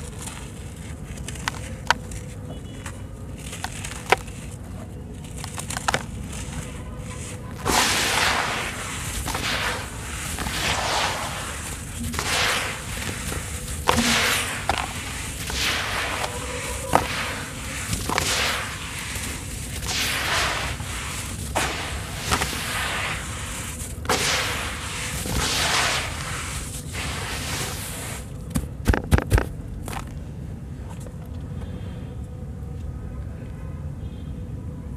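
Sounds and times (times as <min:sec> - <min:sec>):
hands crumbling gritty mix in a bowl: 0:03.3 - 0:27.2.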